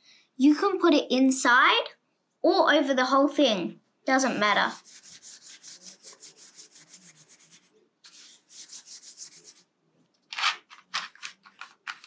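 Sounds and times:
paintbrush scrubbing on paper: 4.3 - 9.7.

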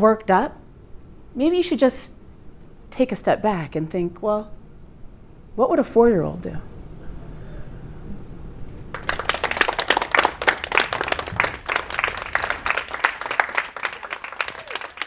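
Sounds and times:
audience applauding: 8.9 - 15.0.

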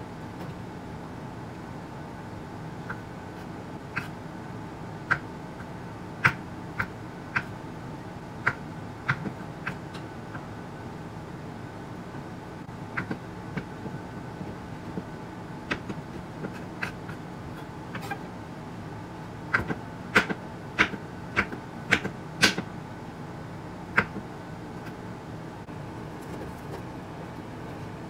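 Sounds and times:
steady low hum: 0.0 - 28.0
knife chopping on wooden board: 19.5 - 22.6.

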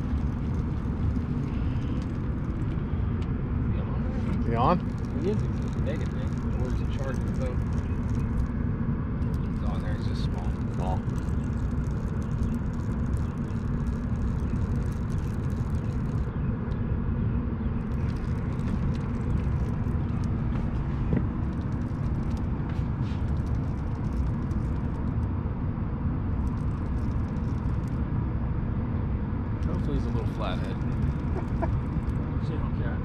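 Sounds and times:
low background rumble: 0.0 - 33.0
faint clicks: 17.8 - 25.3.

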